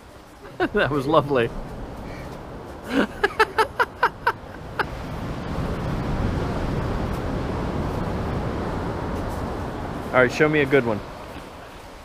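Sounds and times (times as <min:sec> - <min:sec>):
wind and surf rushing: 0:00.0 - 0:12.0
child laughing: 0:02.9 - 0:04.9.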